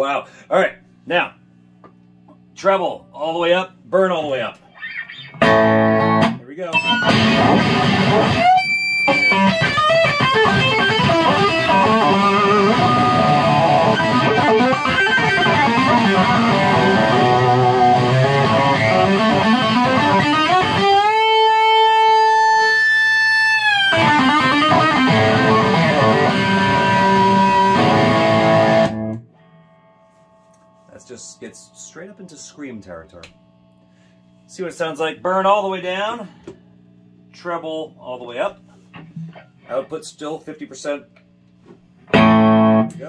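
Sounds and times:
distorted electric guitar lead: 4.7 - 34.5, 42.1 - 43.0.

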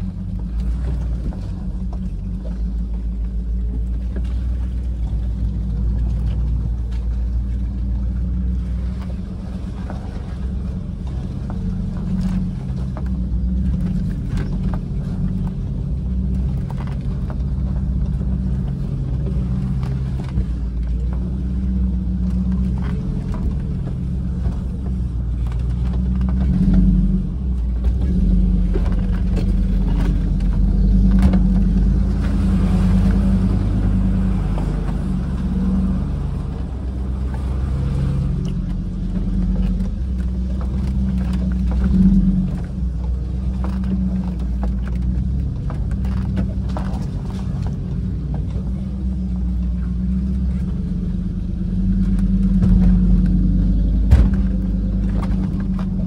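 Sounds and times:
engine running at low revs: 0.0 - 56.0
knocks from tyres and suspension: 52.2 - 56.0.

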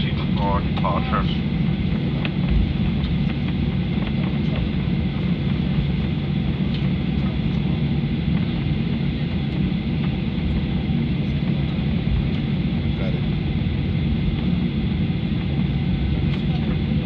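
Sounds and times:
jet engines low rumble: 0.0 - 17.0.

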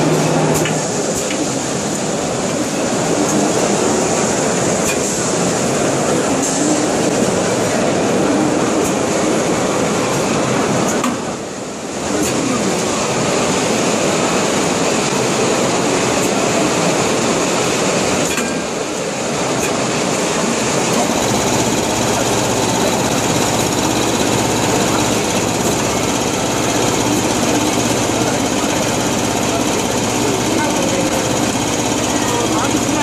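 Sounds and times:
machinery running: 12.7 - 33.0.

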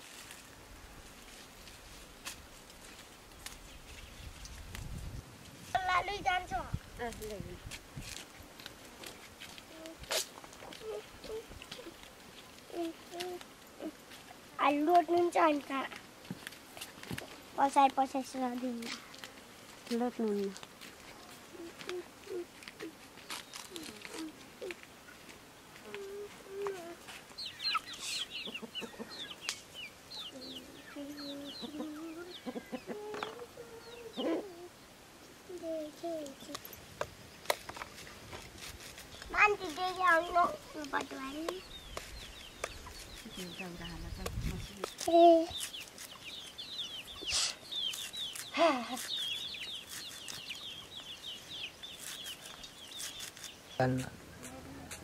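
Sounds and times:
chicks peeping: 25.9 - 34.6, 39.2 - 54.0
chickens clucking: 25.9 - 34.7.

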